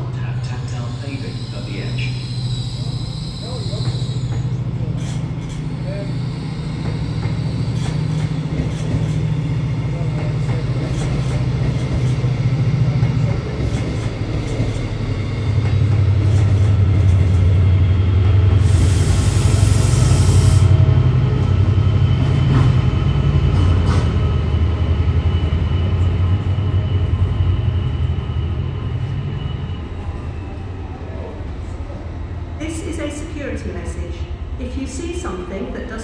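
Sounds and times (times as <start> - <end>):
diesel locomotive engine droning: 0.0 - 36.0.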